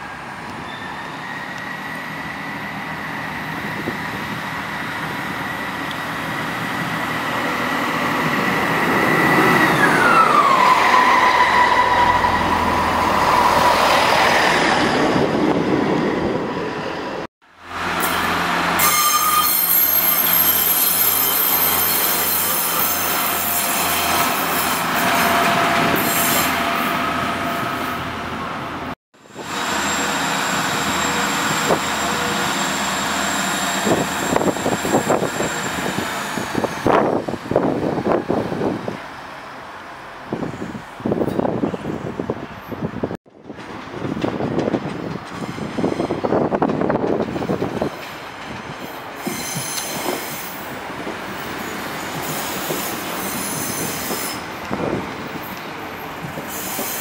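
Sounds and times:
train passing with rhythmic beat: 0.0s - 57.0s
train squealing as it slows: 0.6s - 14.9s, 18.0s - 28.1s, 29.3s - 38.1s, 45.3s - 57.0s.

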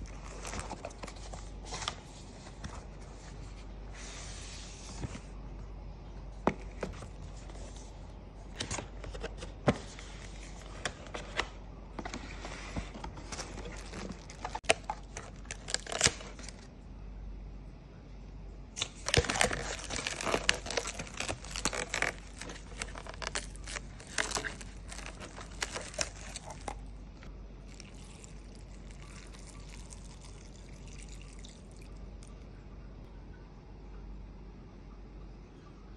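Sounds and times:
plastic containers clicking and crinkling: 10.6s - 16.6s, 18.8s - 26.9s
broth pouring into bowl: 27.7s - 32.0s.

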